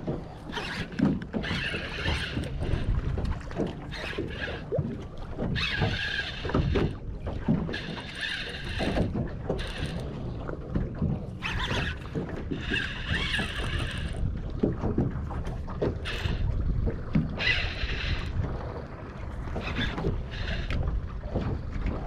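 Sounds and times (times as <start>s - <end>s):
water noise: 0.0s - 22.0s
wind: 0.0s - 22.0s
fishing reel drag buzzing: 0.4s - 4.8s, 5.4s - 7.0s, 7.6s - 10.2s, 11.4s - 14.2s, 16.0s - 16.5s, 17.3s - 18.4s, 19.4s - 20.9s.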